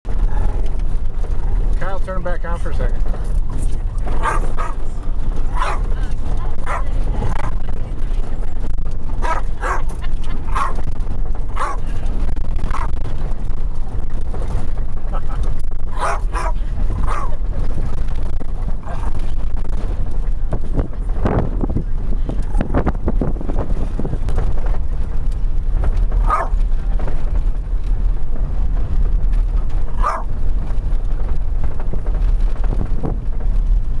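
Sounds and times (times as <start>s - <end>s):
vehicle rumble inside cabin: 0.0s - 34.0s
dog barking: 4.2s - 4.8s, 5.5s - 5.9s, 6.6s - 6.9s, 9.2s - 9.9s, 10.5s - 10.8s, 11.6s - 11.8s, 16.0s - 17.4s, 26.2s - 26.6s, 30.0s - 30.3s.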